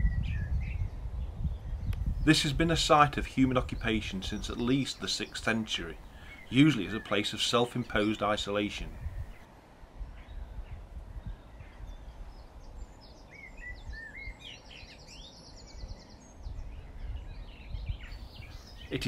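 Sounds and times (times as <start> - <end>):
birds chirping: 1.8 - 9.5, 11.2 - 19.0.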